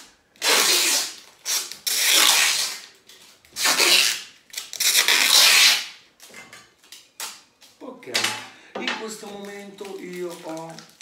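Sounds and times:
packing tape pulled off roll: 0.0s - 6.3s, 9.2s - 11.0s.

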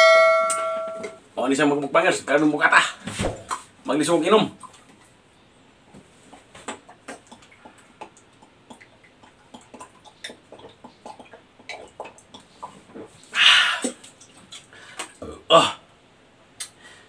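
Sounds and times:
person gulping water: 6.4s - 15.8s.

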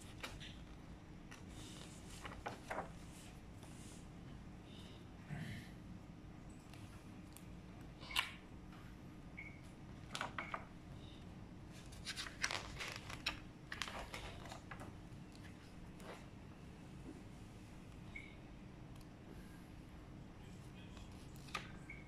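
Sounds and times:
book pages rustling: 0.0s - 4.0s, 11.7s - 16.3s.

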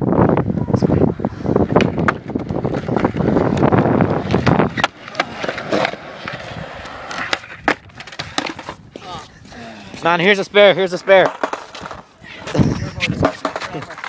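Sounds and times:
skateboard wheels rolling on concrete: 0.0s - 14.0s
skateboard knocking on concrete: 1.6s - 9.1s, 10.8s - 14.0s.

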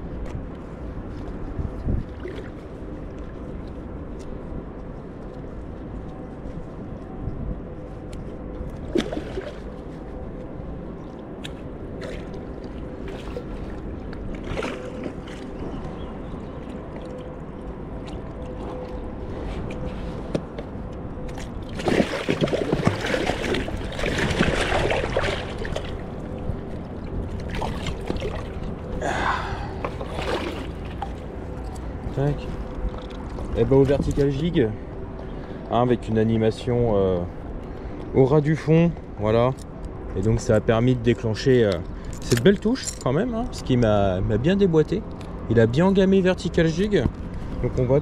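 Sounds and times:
water lapping: 1.7s - 4.3s, 8.7s - 10.2s, 11.0s - 20.6s, 21.3s - 35.8s
fish thrashing and splashing: 8.8s - 10.0s, 11.9s - 15.8s, 21.3s - 32.0s.

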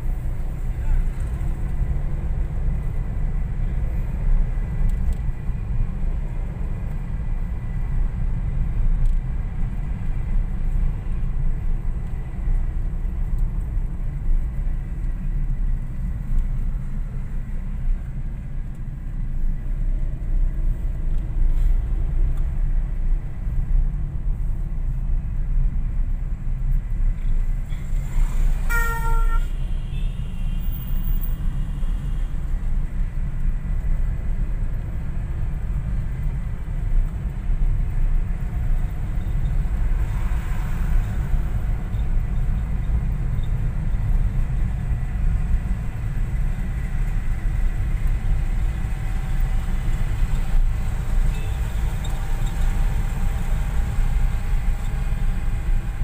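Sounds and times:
car horn: 28.5s - 32.3s.

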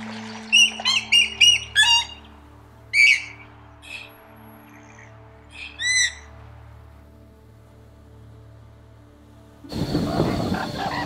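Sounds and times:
moorhen calling: 0.0s - 6.4s
soft background music: 0.0s - 11.0s.

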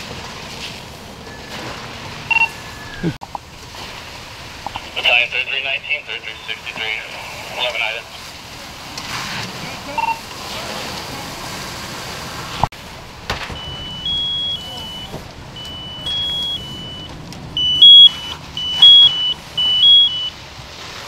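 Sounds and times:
electronic alarm two-pitch tone: 13.6s - 20.3s.

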